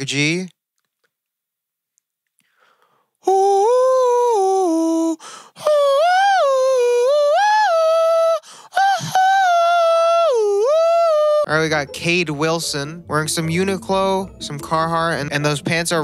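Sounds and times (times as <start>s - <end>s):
man humming into microphone: 3.3s - 11.8s.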